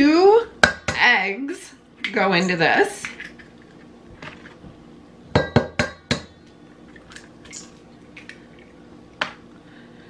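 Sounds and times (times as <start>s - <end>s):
eggs knocked on metal bowl: 5.3s - 6.4s.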